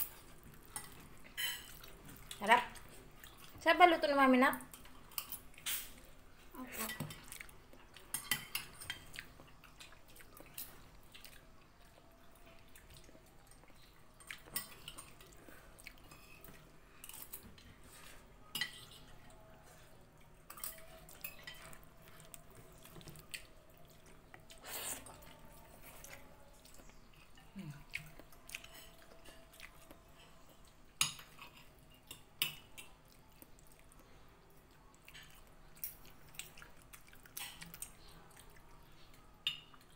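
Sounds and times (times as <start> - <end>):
cutlery clinking on plates: 0.0 - 1.9, 6.8 - 9.3, 16.1 - 19.4, 20.4 - 23.3, 28.5 - 29.6, 31.0 - 33.0, 39.4 - 39.9.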